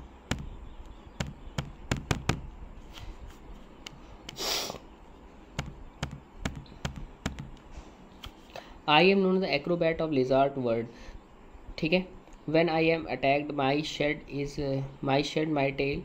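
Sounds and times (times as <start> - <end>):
sharp taps and clicks: 0.3 - 2.6, 5.6 - 8.4
brief hiss: 4.4 - 4.8.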